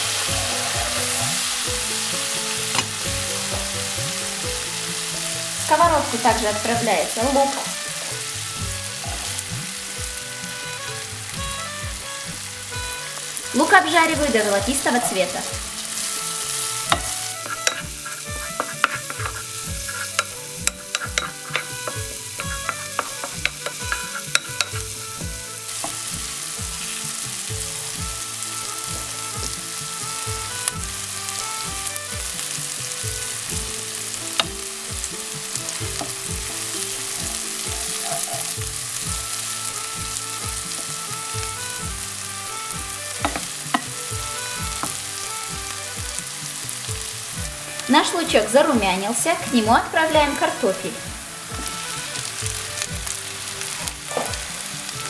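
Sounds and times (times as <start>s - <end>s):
onion sizzling in pan: 0.0s - 55.0s
wooden spatula scraping pan: 12.3s - 28.2s.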